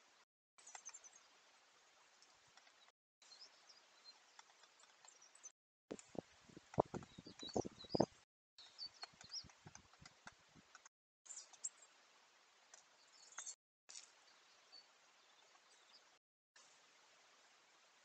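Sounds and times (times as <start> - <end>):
high bird chirps: 6.8 - 9.5.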